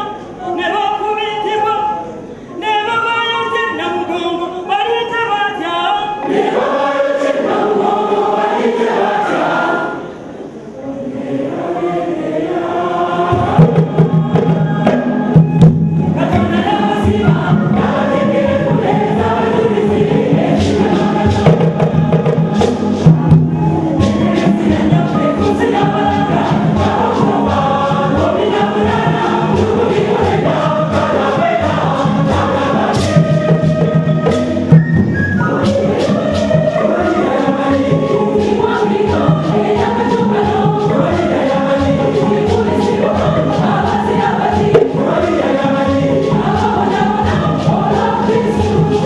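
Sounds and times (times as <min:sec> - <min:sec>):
choir singing in harmony: 0:00.0 - 0:49.0
drums: 0:13.2 - 0:49.0.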